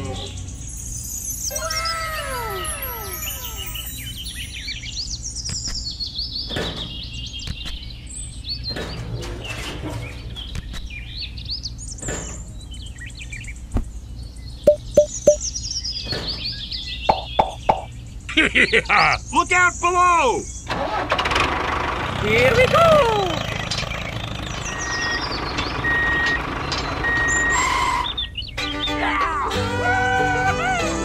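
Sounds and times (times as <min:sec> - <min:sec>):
birds chirping: 0:00.0 - 0:20.7, 0:22.2 - 0:29.1
sharp taps: 0:14.7 - 0:15.4, 0:17.1 - 0:17.9
wooden boards knocking: 0:17.1 - 0:17.9.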